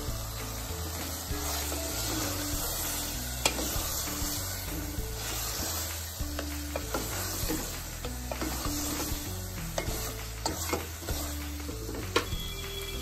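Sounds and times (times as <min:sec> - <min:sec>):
bones sizzling in oil: 0:00.0 - 0:13.0
soft background music: 0:00.0 - 0:13.0
spatula knocking on pot: 0:06.3 - 0:12.4.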